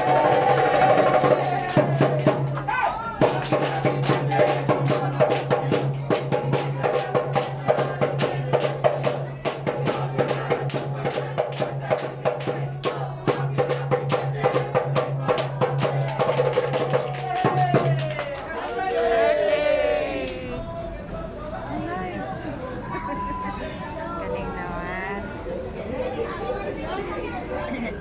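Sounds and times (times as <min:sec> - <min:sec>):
music: 0:00.0 - 0:18.1
fast rhythmic percussion: 0:00.0 - 0:18.6
voices: 0:00.0 - 0:28.0.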